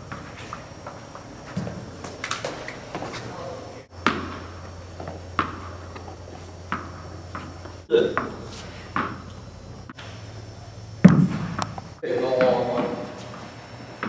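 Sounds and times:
steady low hum: 0:00.0 - 0:14.0
tennis ball bouncing on hard floor: 0:04.0 - 0:10.1, 0:11.0 - 0:13.0.

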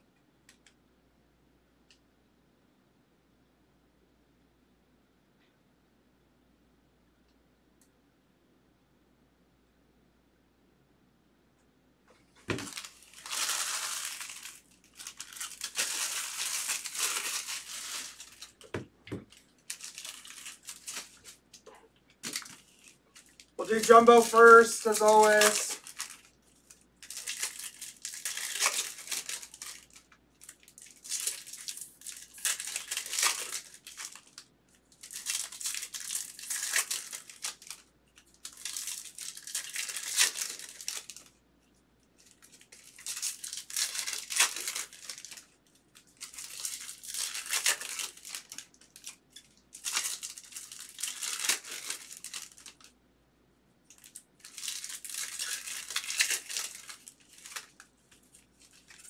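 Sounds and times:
foil wrappers torn and crinkled: 0:12.5 - 0:21.4, 0:22.2 - 0:41.3, 0:42.2 - 0:53.0, 0:53.9 - 0:59.0.

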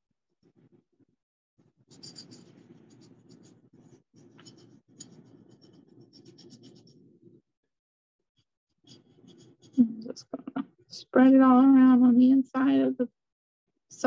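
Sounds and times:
paintbrush rubbing on ceramic: 0:01.8 - 0:07.4, 0:08.8 - 0:10.4.

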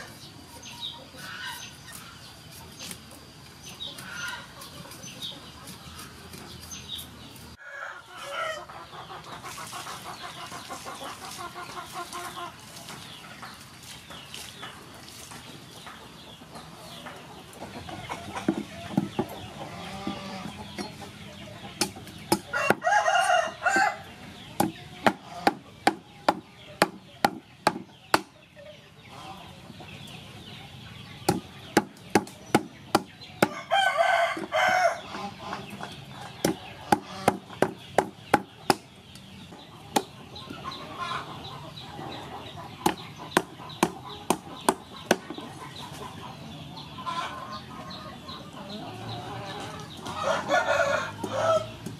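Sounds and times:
rooster crowing: 0:07.6 - 0:08.7, 0:22.5 - 0:24.0, 0:33.4 - 0:35.0, 0:50.2 - 0:51.7
cleaver chopping on wooden block: 0:21.8 - 0:22.8, 0:24.6 - 0:28.3, 0:31.3 - 0:33.6, 0:36.4 - 0:38.8.

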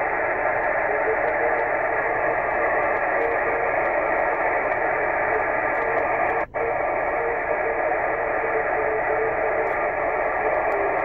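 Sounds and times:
radio receiver hiss: 0:00.0 - 0:11.0.

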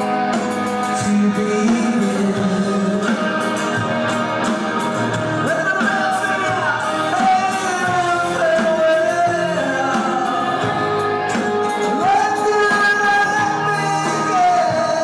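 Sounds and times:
live rock band playing: 0:00.0 - 0:15.0
man singing lead vocal: 0:00.0 - 0:15.0.

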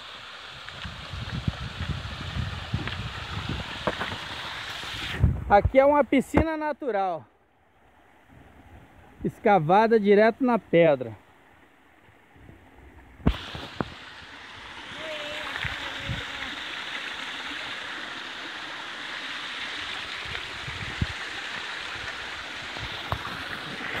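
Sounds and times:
waterfall splashing into pool: 0:00.0 - 0:06.6, 0:13.2 - 0:24.0.

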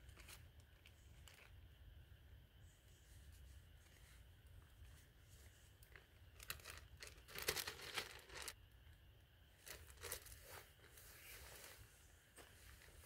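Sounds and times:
plastic bag crinkling: 0:05.9 - 0:08.6, 0:09.6 - 0:10.4.

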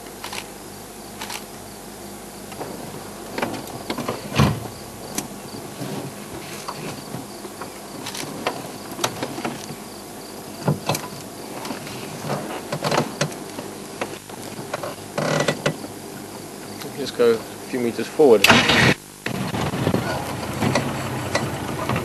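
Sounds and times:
insects chirping faintly: 0:00.0 - 0:22.0
handling clicks knocks and creaks: 0:02.5 - 0:09.8, 0:10.6 - 0:16.0, 0:20.2 - 0:22.0.

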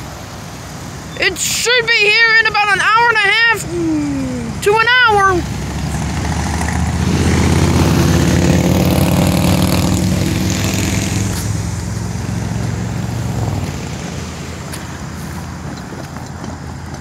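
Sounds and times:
vehicle engine driving off: 0:05.4 - 0:17.0.

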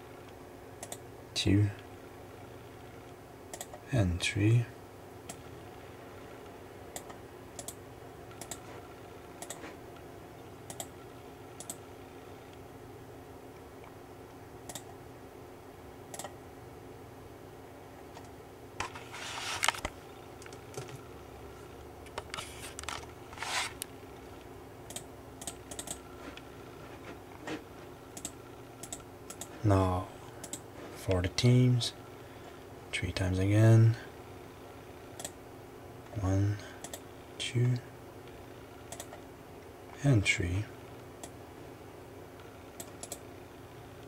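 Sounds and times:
faint hum: 0:00.0 - 0:44.0
computer mouse clicks: 0:00.8 - 0:01.0, 0:03.5 - 0:03.8, 0:07.0 - 0:08.6, 0:09.4 - 0:09.6, 0:10.7 - 0:11.0, 0:11.6 - 0:11.8, 0:14.6 - 0:15.0, 0:16.1 - 0:16.4, 0:24.9 - 0:26.0, 0:28.1 - 0:29.5, 0:30.4 - 0:30.6, 0:35.2 - 0:35.4, 0:36.8 - 0:37.0, 0:38.9 - 0:39.2, 0:42.8 - 0:43.2.

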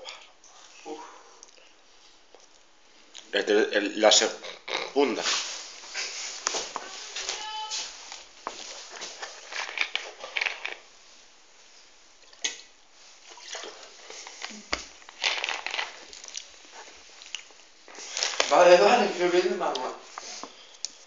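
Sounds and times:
crackly clicks and rustles: 0:05.8 - 0:10.9, 0:13.8 - 0:21.0
chewing and mouth noises: 0:13.3 - 0:18.5.

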